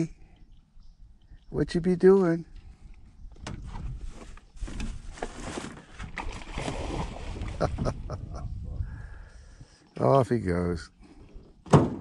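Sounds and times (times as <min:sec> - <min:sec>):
water splashing and sloshing: 0:03.7 - 0:08.2.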